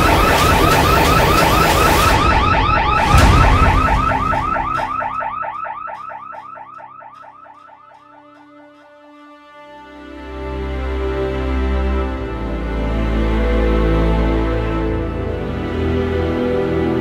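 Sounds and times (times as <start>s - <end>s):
sudden loud hit: 0.0s - 7.2s
electronic alarm chirping: 0.0s - 8.6s.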